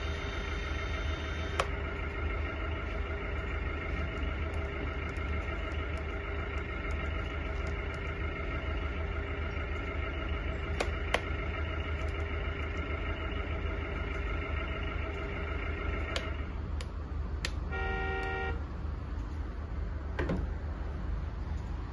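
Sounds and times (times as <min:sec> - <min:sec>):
model loader motor drone and whine: 0:00.0 - 0:21.9
horn toot: 0:17.7 - 0:18.6.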